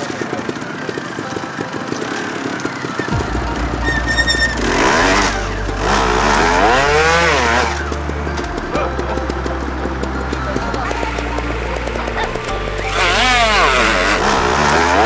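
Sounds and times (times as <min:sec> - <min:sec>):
motorcycle engine revving: 0:02.0 - 0:15.0
electronic music with deep bass: 0:03.1 - 0:15.0.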